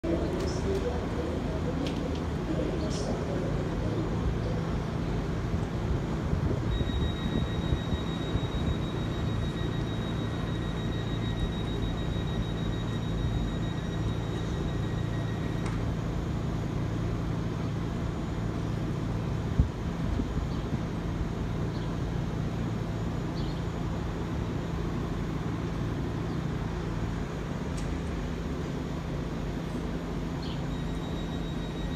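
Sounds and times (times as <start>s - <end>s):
train equipment humming: 0.0s - 31.9s
thin high whine: 5.5s - 19.6s, 22.2s - 31.9s.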